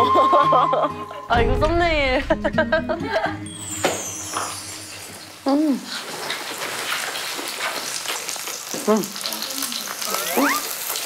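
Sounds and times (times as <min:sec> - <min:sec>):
pork sizzling on a grill: 0:03.5 - 0:11.0.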